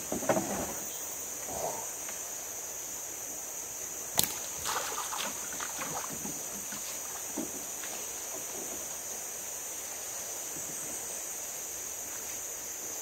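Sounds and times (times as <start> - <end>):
water splashing and sloshing: 4.2 - 9.0.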